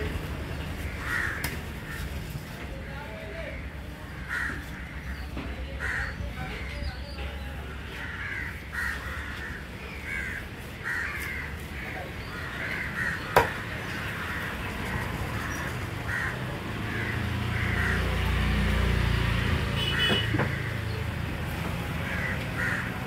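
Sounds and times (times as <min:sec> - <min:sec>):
crows cawing: 0:00.8 - 0:02.4, 0:03.5 - 0:05.2, 0:05.8 - 0:06.2, 0:07.7 - 0:18.4, 0:19.8 - 0:20.9, 0:22.0 - 0:23.0.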